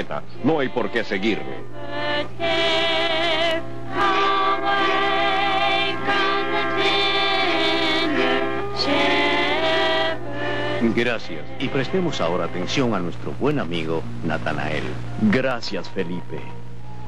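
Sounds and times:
group singing a hymn: 0:00.0 - 0:13.2.

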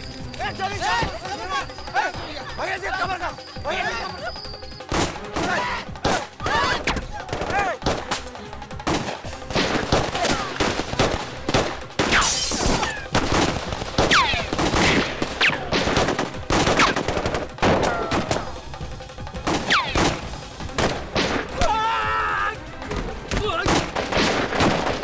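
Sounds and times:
gunshots: 0:04.9 - 0:18.6, 0:19.4 - 0:21.7, 0:22.8 - 0:25.0
ricochet whines: 0:12.0 - 0:18.5, 0:19.5 - 0:21.5.

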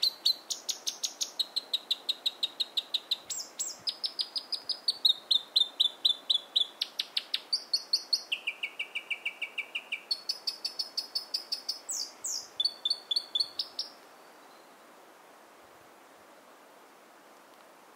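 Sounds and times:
bird singing rapid repeated notes: 0:00.0 - 0:14.0.

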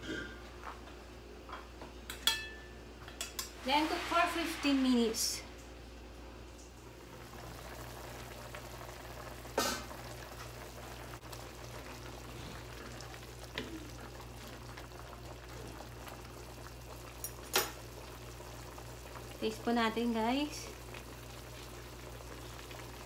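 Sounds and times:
soup boiling in a pan: 0:06.7 - 0:23.0.

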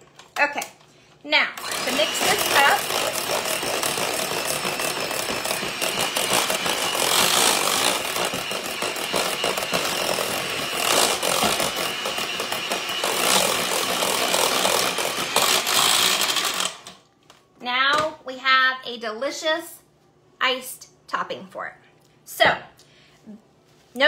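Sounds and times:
electric mixer motor humming: 0:01.6 - 0:17.0.

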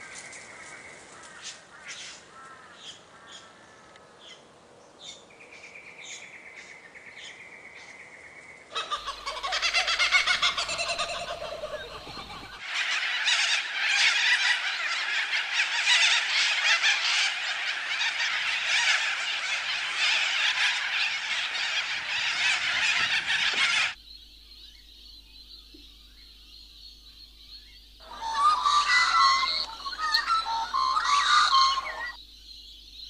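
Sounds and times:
chorus of animal calls: 0:08.7 - 0:24.0, 0:28.0 - 0:32.3.

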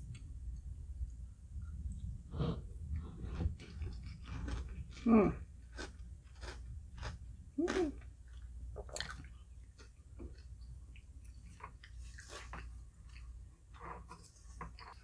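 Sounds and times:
person chewing wetly: 0:05.7 - 0:15.0
short voiced sounds: 0:07.6 - 0:08.0.

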